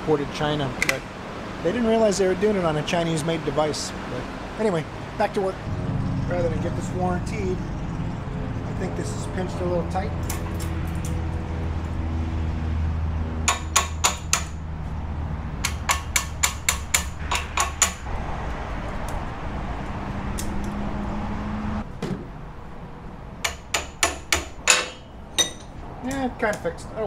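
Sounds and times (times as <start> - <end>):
sharp metallic taps and clicks: 13.4 - 14.6, 15.6 - 18.1, 23.4 - 26.7.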